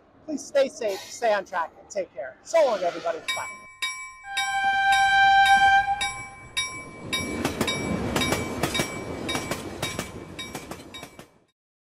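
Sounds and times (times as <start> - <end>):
train wheels rumbling and clacking: 3.2 - 11.5
ringing clang: 3.3 - 9.6
train horn blowing: 4.3 - 6.4.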